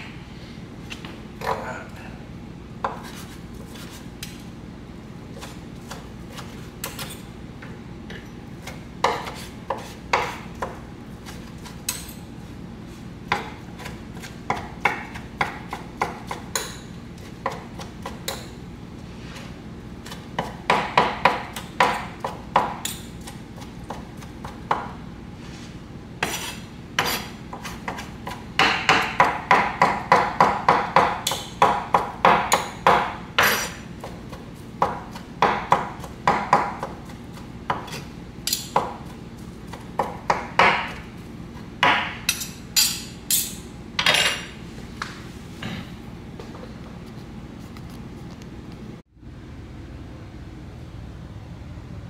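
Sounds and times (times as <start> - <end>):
steady low hum: 0.0 - 52.0
knife chopping on wooden board: 8.6 - 12.0, 13.3 - 18.5, 20.0 - 25.0, 26.2 - 41.1.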